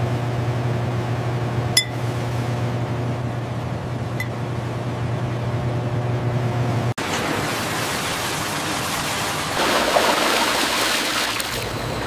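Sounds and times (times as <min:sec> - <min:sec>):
low machine hum: 0:00.0 - 0:07.6, 0:11.4 - 0:12.0
glassware clinking: 0:01.8 - 0:02.0.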